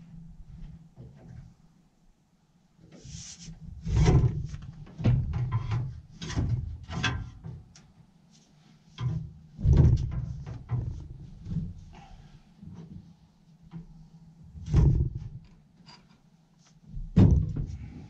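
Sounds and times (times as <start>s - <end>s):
steel parts clunking and scraping: 14.7s - 16.3s.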